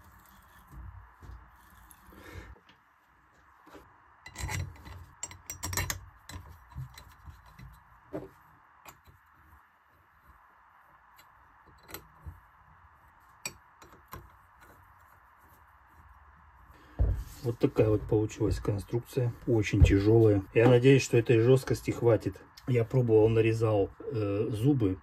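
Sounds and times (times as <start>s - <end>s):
small tool turning in bolt holes: 4.3s - 7.6s
steel clinks and knocks: 4.3s - 7.6s.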